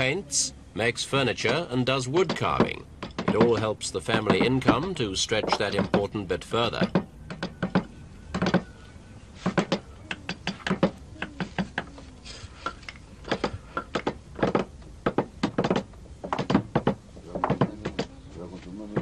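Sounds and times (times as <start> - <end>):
chisel knocking into wood: 2.2 - 6.2, 13.3 - 18.1.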